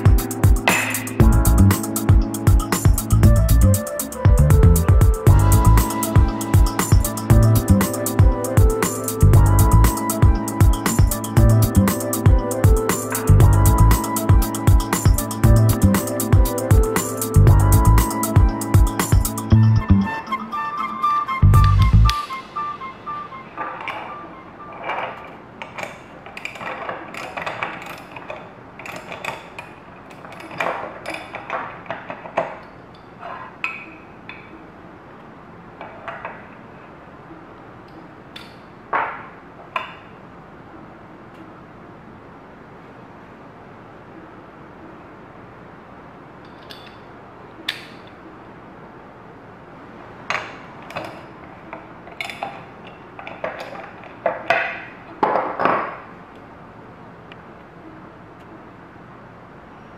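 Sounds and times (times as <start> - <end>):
metal tools clinking and knocking: 24.8 - 34.0, 46.4 - 47.1, 52.1 - 55.9.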